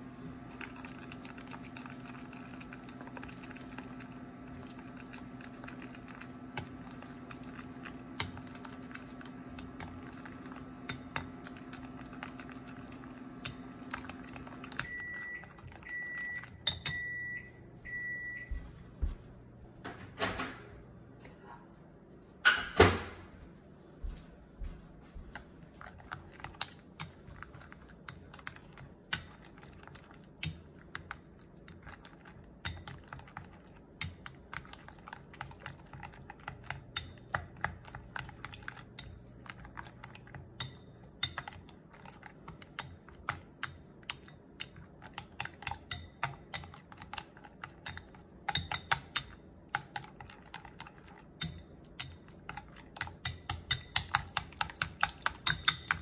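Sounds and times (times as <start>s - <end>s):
chopsticks clicking against glass bowl: 51.4s - 56.0s.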